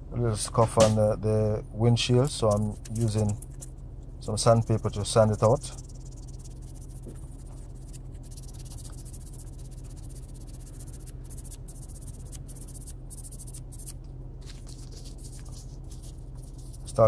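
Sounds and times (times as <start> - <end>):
steady low hum: 0.0 - 17.0
sandpaper rubbing on plastic: 2.4 - 3.7, 4.4 - 13.9, 14.5 - 17.0.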